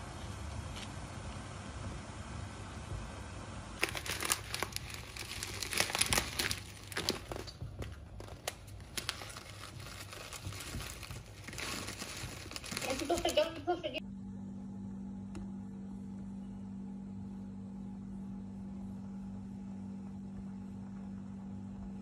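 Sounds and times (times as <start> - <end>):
crinkly material crumpling: 3.8 - 14.0.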